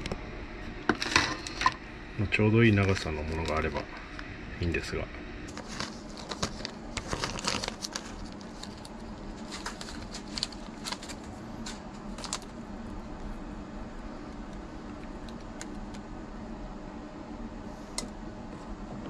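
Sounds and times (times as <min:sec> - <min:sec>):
low steady hum: 0:00.0 - 0:19.0
plastic bag crinkling: 0:05.5 - 0:12.6.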